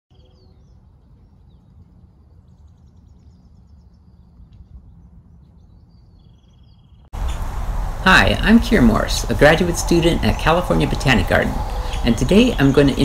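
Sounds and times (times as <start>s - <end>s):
small birds chirping: 0.1s - 13.0s
low steady rumble: 7.2s - 13.0s.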